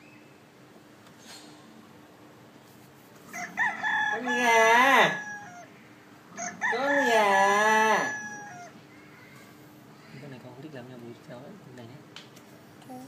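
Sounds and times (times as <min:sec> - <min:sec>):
rooster crowing from a speaker: 0:03.3 - 0:05.7, 0:06.4 - 0:08.8.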